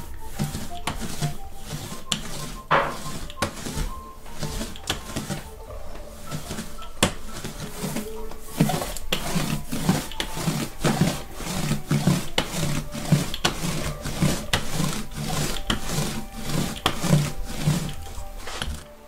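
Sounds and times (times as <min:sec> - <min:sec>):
scratchy rubbing on printing plate: 0:00.0 - 0:19.0.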